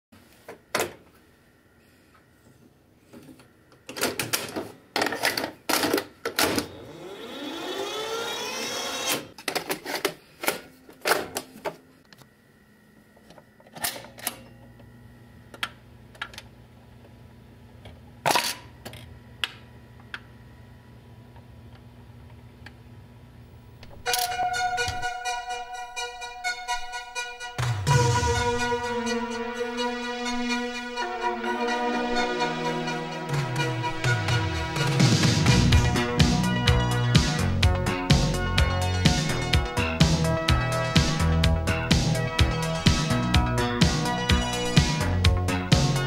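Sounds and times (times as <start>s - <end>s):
whirr rising and falling in pitch: 6.7s - 9.3s
record changer motor hum: 27.6s - 46.0s.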